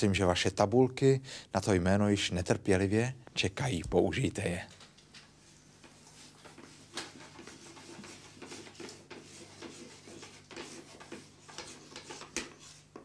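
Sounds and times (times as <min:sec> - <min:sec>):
pens scratching on boards: 0:05.8 - 0:13.0.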